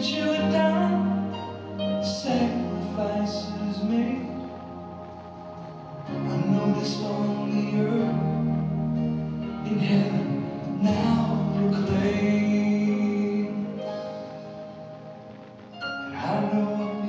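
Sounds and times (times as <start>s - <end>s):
person singing: 0.0s - 14.7s, 16.1s - 17.0s
held accompaniment notes: 0.0s - 17.0s.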